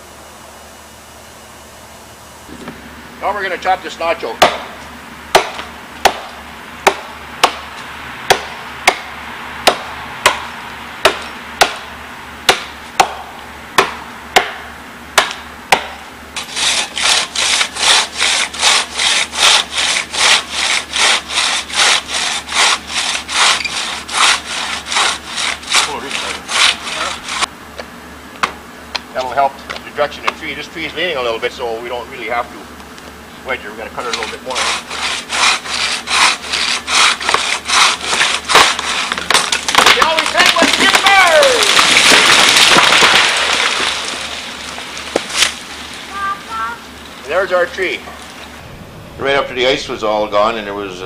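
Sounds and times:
axes chopping tree: 4.4s - 27.4s, 34.1s - 45.9s
crosscut saw rasping: 15.8s - 27.5s, 34.0s - 39.9s.

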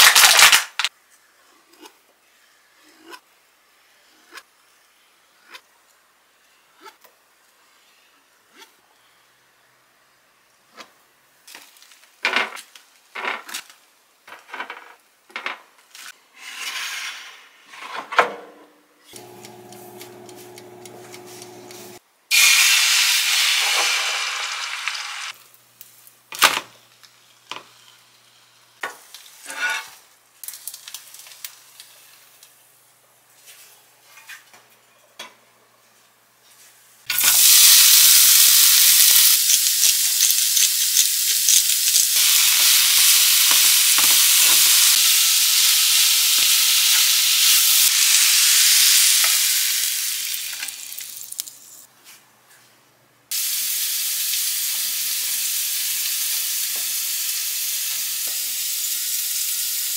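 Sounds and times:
egg sizzling in pan: 19.2s - 26.1s, 37.1s - 51.7s, 53.3s - 59.9s
carrots frying in oil: 30.4s - 32.5s, 37.1s - 51.7s, 53.3s - 59.9s.

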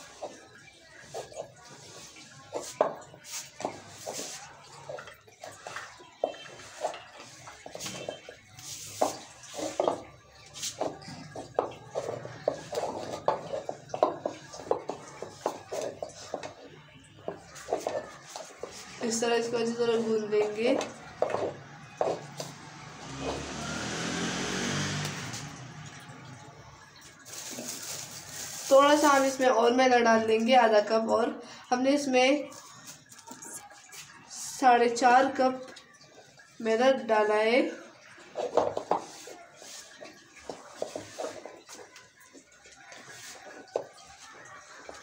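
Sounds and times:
hands kneading dough in bowl: 0.0s - 29.8s, 38.2s - 45.0s
passing vehicle engine: 21.2s - 27.2s.

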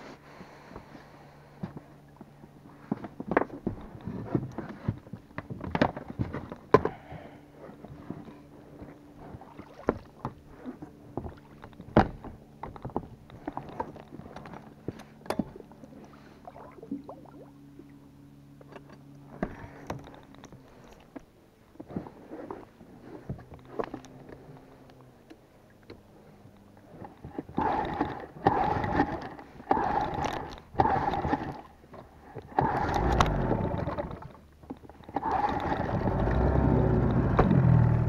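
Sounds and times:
water sounds: 9.2s - 11.9s, 15.3s - 18.2s, 26.8s - 38.0s.

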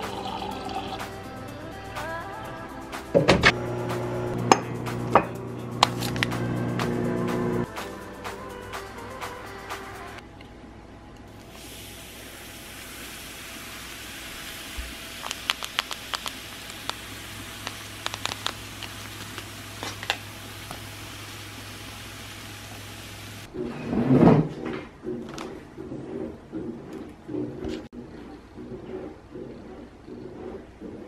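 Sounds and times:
tea foam fizzing and crackling: 11.5s - 23.5s.

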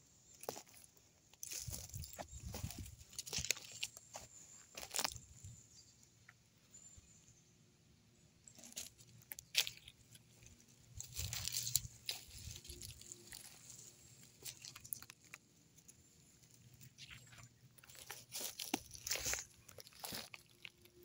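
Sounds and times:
footsteps crunching through dry leaves: 1.4s - 5.3s, 10.9s - 15.3s, 16.9s - 21.0s.

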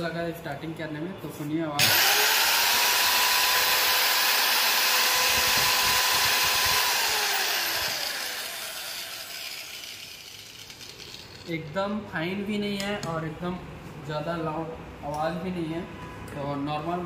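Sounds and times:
marble cutter high whine: 1.8s - 11.3s.

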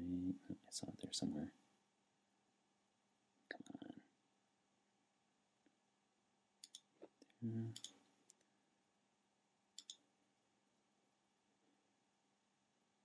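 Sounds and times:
computer mouse button clicks: 9.8s - 10.0s.

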